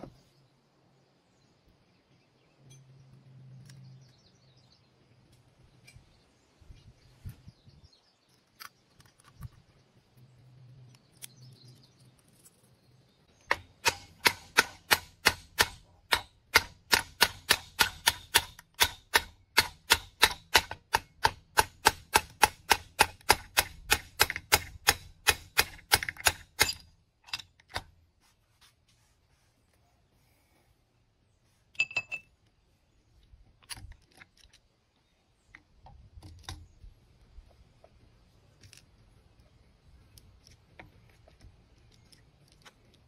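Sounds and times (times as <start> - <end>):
faint clicks of metal parts: 25.7 - 28.0, 31.6 - 43.0.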